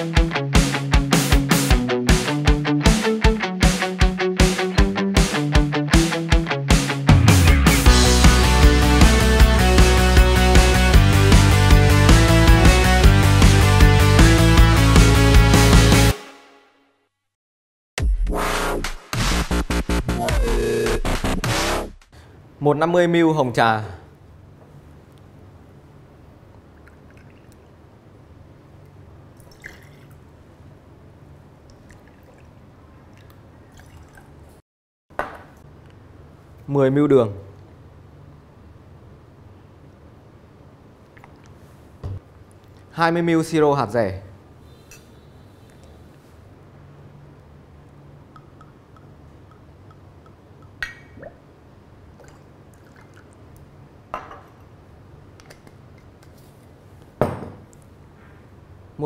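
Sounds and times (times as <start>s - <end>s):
tea pouring and trickling: 26.6s - 27.8s, 29.4s - 30.3s, 31.6s - 34.5s, 52.1s - 53.7s.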